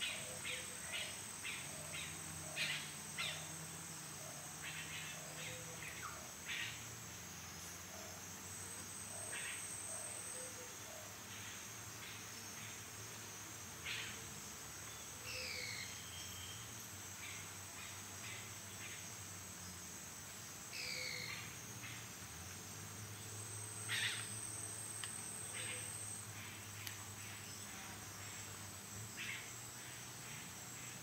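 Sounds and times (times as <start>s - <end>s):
high insect drone: 0.0s - 31.0s
bird calls: 23.9s - 24.3s.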